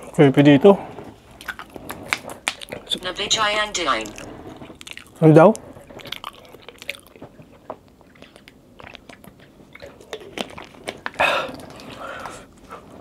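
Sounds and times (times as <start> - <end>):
chewing and biting food: 1.3 - 2.8, 4.7 - 12.7.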